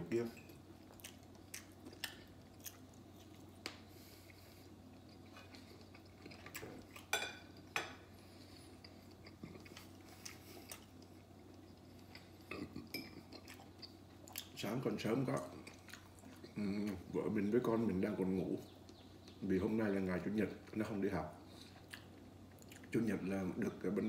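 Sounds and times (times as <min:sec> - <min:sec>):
faint steady hum: 0:00.0 - 0:24.0
person chewing food: 0:00.5 - 0:14.6, 0:15.2 - 0:17.1, 0:21.5 - 0:23.0.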